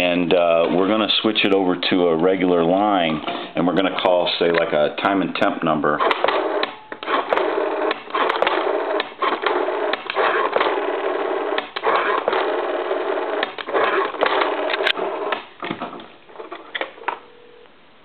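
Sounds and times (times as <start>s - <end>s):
rotary dial pulse clicks: 6.0s - 15.5s.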